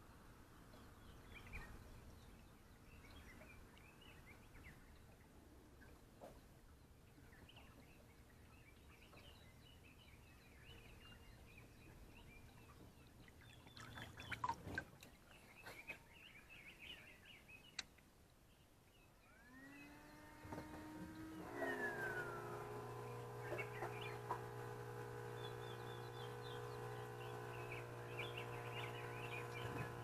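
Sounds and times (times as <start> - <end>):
drawn-out multi-pitched tone: 19.5 - 24.3.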